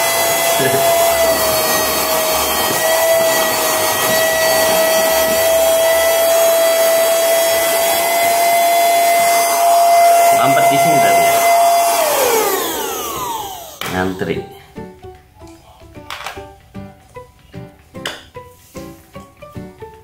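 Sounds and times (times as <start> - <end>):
handheld vacuum cleaner whining: 0.0 - 14.5.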